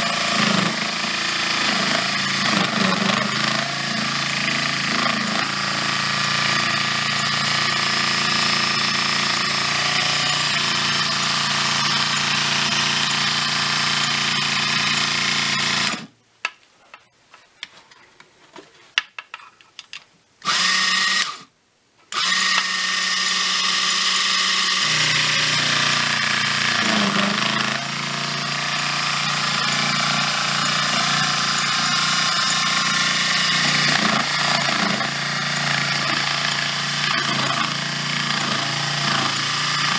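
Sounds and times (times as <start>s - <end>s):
small motor drill whine: 0.0s - 16.1s, 20.5s - 21.5s, 22.2s - 39.9s
small clicks and knocks: 16.4s - 20.1s.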